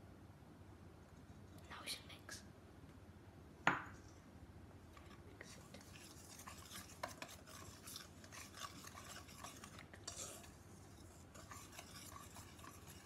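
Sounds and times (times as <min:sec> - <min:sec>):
utensil scraping metal bowl: 0:05.0 - 0:13.0.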